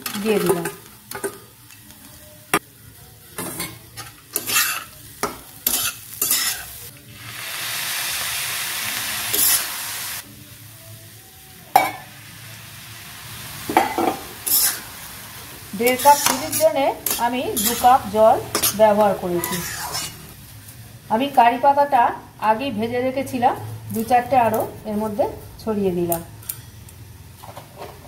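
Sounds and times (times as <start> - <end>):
metal spatula scraping pan: 3.6 - 4.9, 13.8 - 14.8, 15.8 - 20.3
water sizzling in hot pan: 4.2 - 10.6, 11.6 - 21.5.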